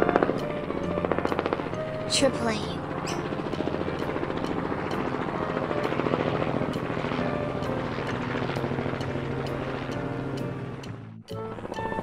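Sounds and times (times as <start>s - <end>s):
propeller aircraft engine running: 0.0s - 12.0s.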